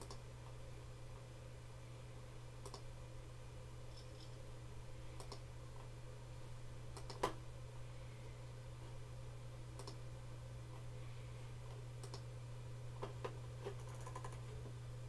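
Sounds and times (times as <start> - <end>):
low electrical hum: 0.0 - 15.0
computer mouse clicks: 2.6 - 2.8, 5.2 - 5.4, 7.0 - 7.4, 9.8 - 10.0, 12.0 - 12.3, 13.7 - 14.5.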